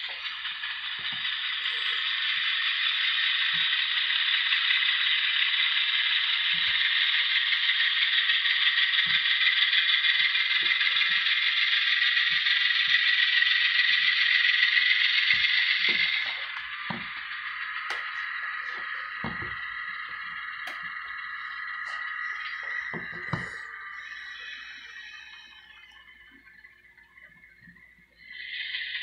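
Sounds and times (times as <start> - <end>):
model train wheels rattling on rails: 0.0 - 27.1.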